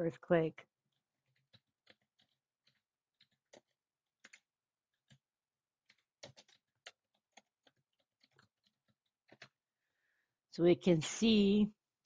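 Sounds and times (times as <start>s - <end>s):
computer keyboard keystrokes: 1.3s - 5.2s, 5.8s - 9.6s.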